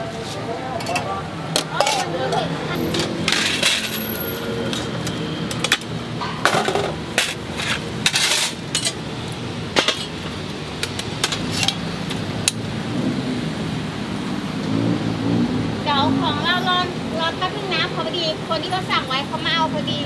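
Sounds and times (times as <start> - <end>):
metal lids and pans clanking: 0.8 - 9.0, 9.7 - 11.9
scraping clatters: 2.8 - 4.2, 5.6 - 9.0.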